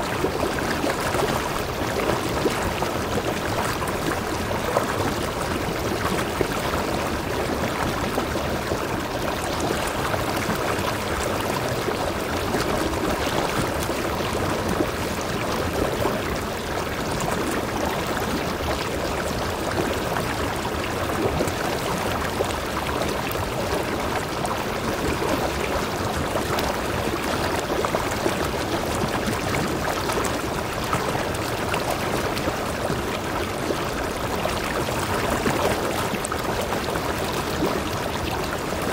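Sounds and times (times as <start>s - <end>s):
water rushing over rocks: 0.0s - 38.9s.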